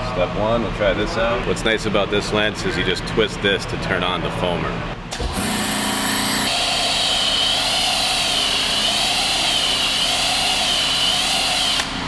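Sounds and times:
pressure washer spraying: 6.5s - 12.0s.

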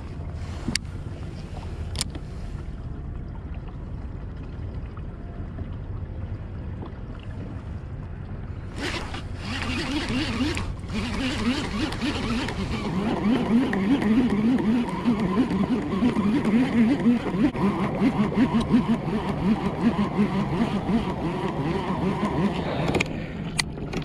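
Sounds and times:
fishing reel gears whining: 8.7s - 22.6s.

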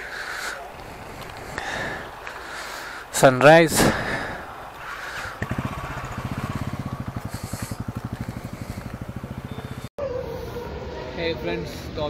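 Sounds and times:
motorcycle engine running: 3.9s - 9.9s.

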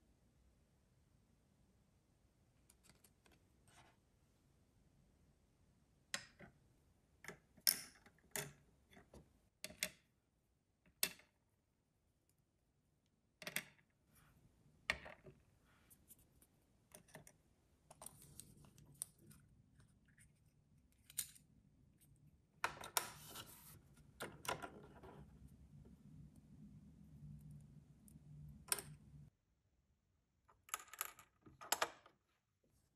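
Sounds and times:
rustling scrape: 23.2s - 23.8s.

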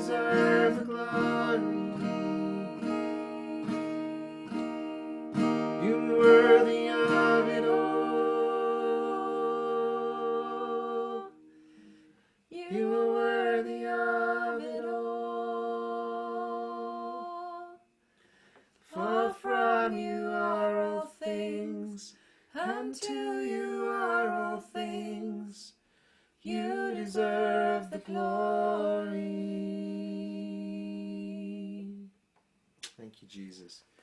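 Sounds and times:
soft acoustic guitar strums: 0.0s - 7.9s
woman and man singing: 0.0s - 11.4s, 12.5s - 17.8s, 18.9s - 25.8s, 26.4s - 32.1s.

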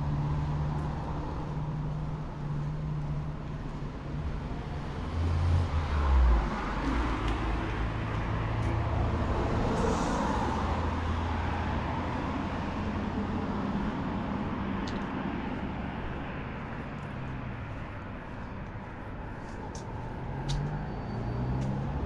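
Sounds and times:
outdoor noise: 0.0s - 22.0s.

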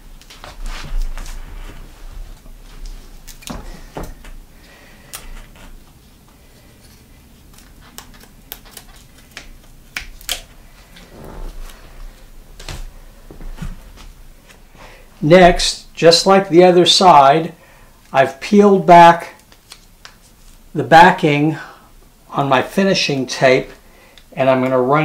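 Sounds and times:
soft rustling of tape: 0.0s - 14.8s, 19.2s - 20.8s.

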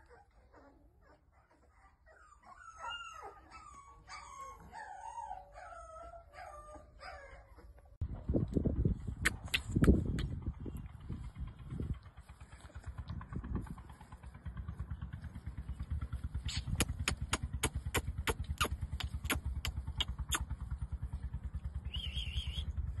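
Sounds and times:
engine idling: 8.3s - 23.0s
sharp clicks: 9.2s - 10.3s, 16.5s - 20.5s.

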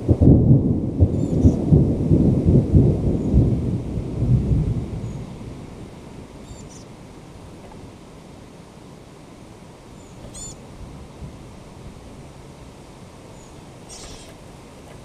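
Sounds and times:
thunderclap: 0.0s - 6.0s.

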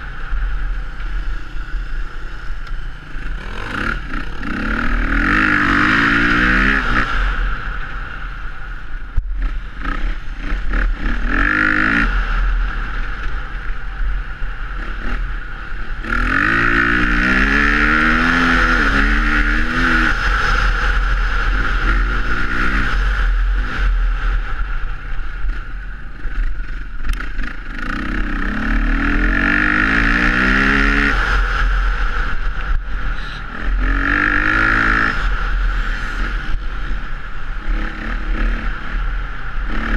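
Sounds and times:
dirt bike engine revving: 0.0s - 7.9s, 9.3s - 13.3s, 14.6s - 24.5s, 26.2s - 39.9s.

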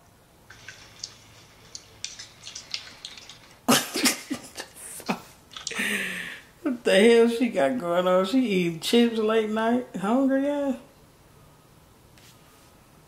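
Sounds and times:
chips crunching: 0.5s - 3.8s
person laughing: 3.7s - 6.3s.

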